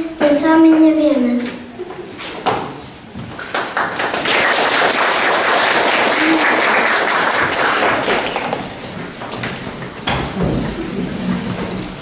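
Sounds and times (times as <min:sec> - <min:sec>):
audience applauding: 0:03.3 - 0:09.0.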